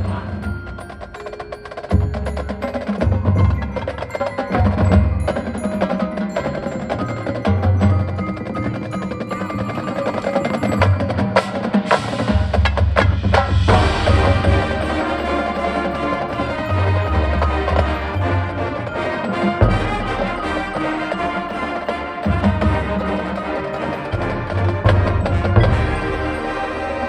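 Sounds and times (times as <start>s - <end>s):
bell-like mallet tones: 0.0s - 12.4s, 13.6s - 27.0s
marching band playing: 0.0s - 27.0s
low drum hits: 13.1s - 14.9s.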